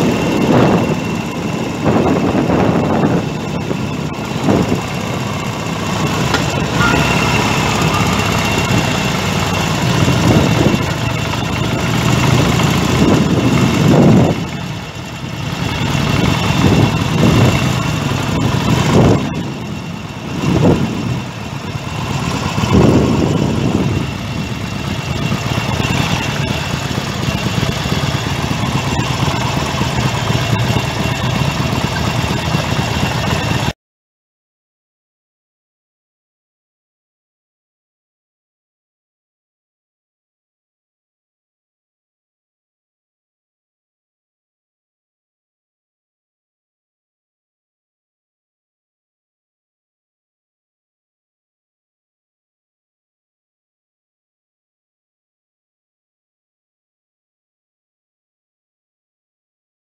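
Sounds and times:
motorcycle engine revving: 0:00.0 - 0:33.7.

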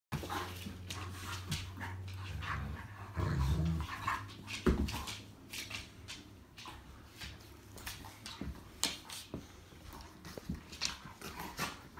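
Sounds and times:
puppies growling: 0:00.2 - 0:04.4.

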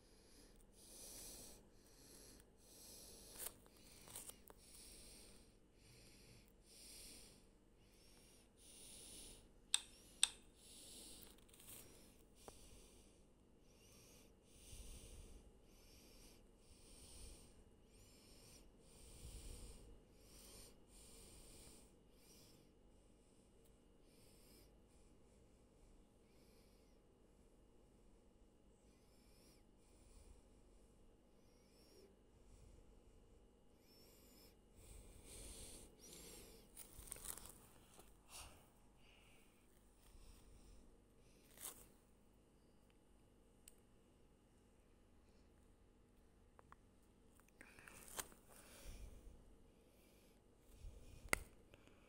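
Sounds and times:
soft rustling: 0:36.0 - 0:38.3, 0:41.4 - 0:42.1.

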